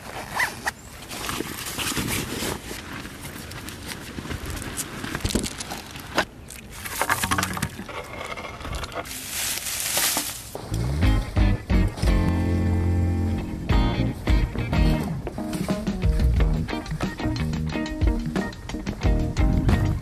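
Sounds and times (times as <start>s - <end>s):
nylon bags rustling: 0.0s - 10.7s.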